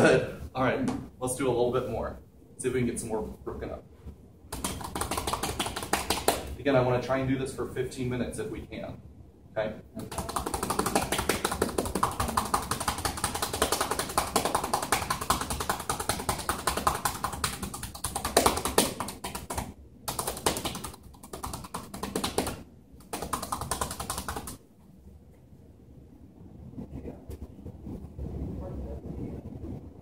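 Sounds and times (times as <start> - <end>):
hands clapping on bare back: 4.5 - 6.6, 10.0 - 24.6.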